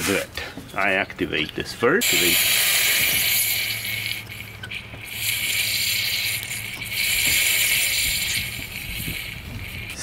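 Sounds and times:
aerosol can hissing: 0:02.0 - 0:10.0.

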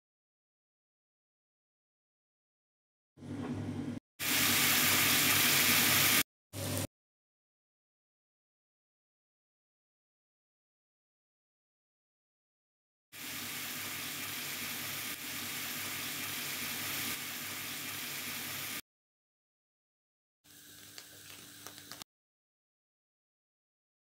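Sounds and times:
spices sizzling in hot oil: 0:04.2 - 0:06.9, 0:13.2 - 0:18.8, 0:20.5 - 0:22.0.

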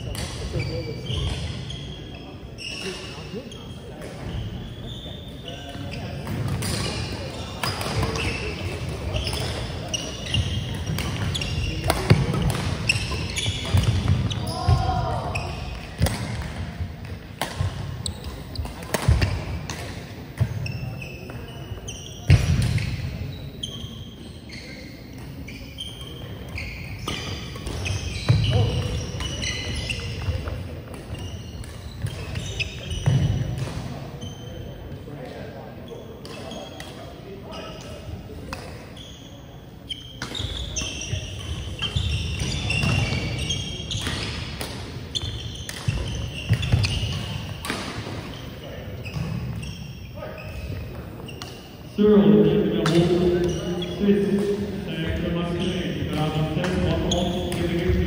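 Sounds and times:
shoes squeaking on gym floor: 0:00.0 - 0:58.0
rackets hitting shuttlecock: 0:06.2 - 0:14.8, 0:15.7 - 0:20.7, 0:40.2 - 0:48.3, 0:52.8 - 0:53.7.

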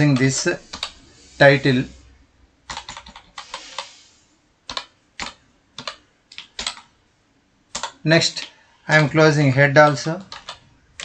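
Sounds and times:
computer keyboard typing: 0:00.0 - 0:01.0, 0:02.6 - 0:04.0, 0:04.6 - 0:07.0, 0:07.7 - 0:09.2, 0:09.8 - 0:11.0.

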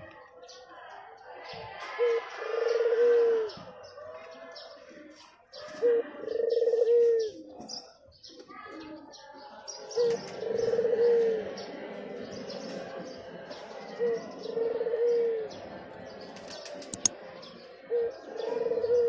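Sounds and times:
dove cooing: 0:02.0 - 0:03.6, 0:05.7 - 0:07.4, 0:09.9 - 0:11.7, 0:14.0 - 0:15.6, 0:17.9 - 0:19.0.

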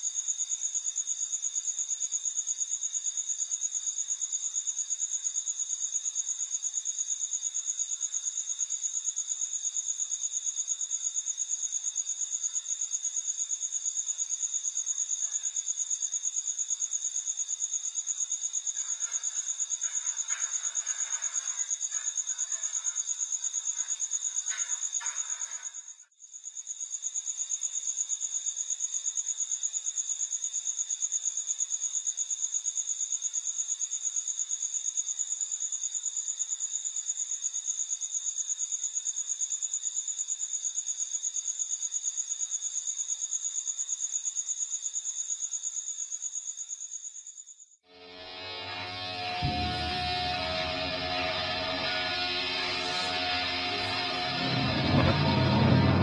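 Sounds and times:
crickets trilling: 0:00.0 - 0:32.0, 0:48.2 - 0:56.0.

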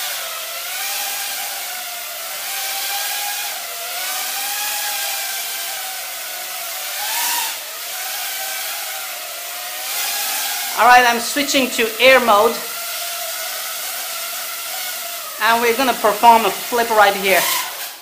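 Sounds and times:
drone motors whining: 0:12.0 - 0:18.0.

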